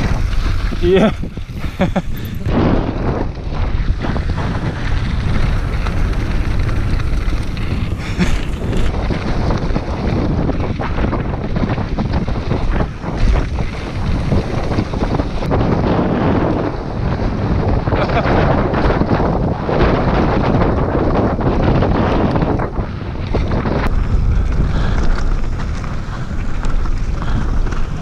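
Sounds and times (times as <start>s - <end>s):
bike rattling: 0.0s - 28.0s
wind buffeting microphone: 0.0s - 28.0s
tyres crunching over gravel: 3.9s - 10.8s, 23.9s - 28.0s.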